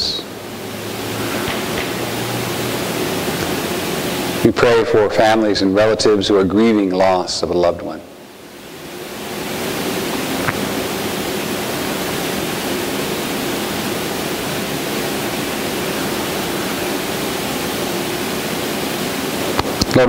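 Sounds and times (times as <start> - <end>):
loud steady hiss: 0.0 - 20.0.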